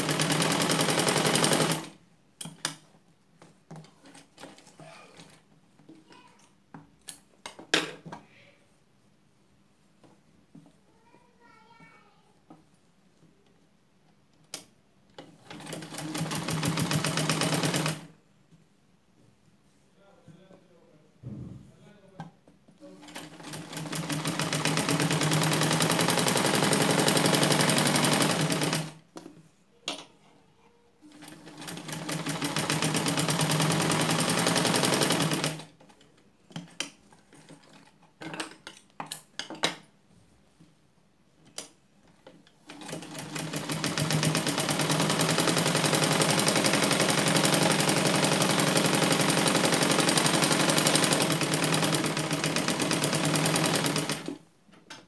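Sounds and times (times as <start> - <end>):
sewing machine stitching: 0.0 - 2.0, 15.2 - 18.1, 22.9 - 29.0, 31.1 - 35.8, 42.7 - 54.4.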